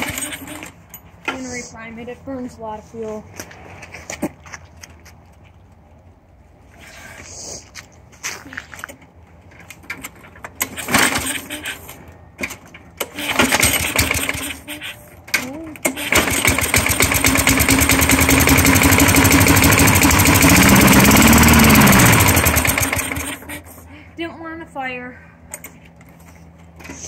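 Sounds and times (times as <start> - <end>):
lawn mower engine starting and running: 0.0 - 0.9, 10.0 - 15.2, 15.8 - 23.9
engine knocks and sputters: 15.9 - 23.8.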